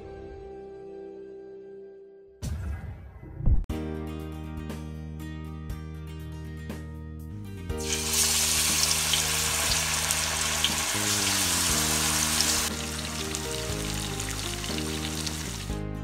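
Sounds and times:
background music: 0:00.0 - 0:16.0
fish deep-frying in oil: 0:07.8 - 0:15.7.

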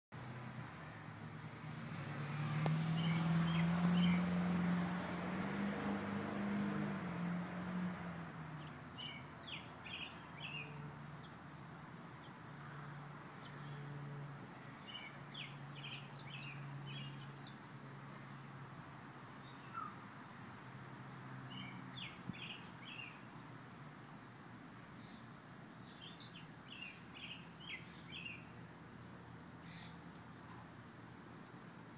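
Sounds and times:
bird chirping: 0:02.9 - 0:04.4, 0:08.6 - 0:11.6, 0:14.8 - 0:18.5, 0:19.4 - 0:23.2, 0:25.0 - 0:28.5.

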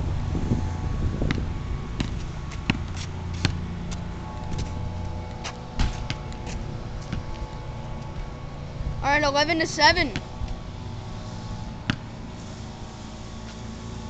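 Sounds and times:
steady low hum: 0:00.0 - 0:14.0
basketball bouncing on asphalt: 0:00.7 - 0:08.4, 0:10.0 - 0:12.4.

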